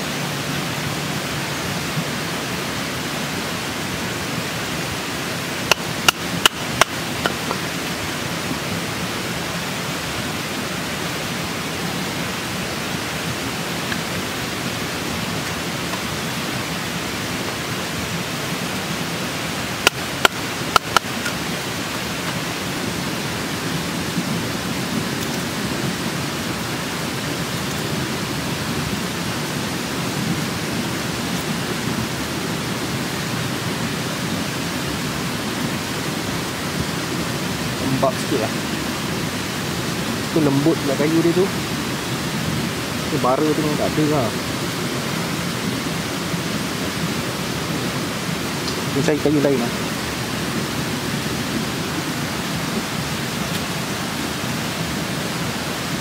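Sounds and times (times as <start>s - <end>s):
river rushing: 0.0s - 56.0s
sharp clicks or knocks: 19.8s - 21.4s.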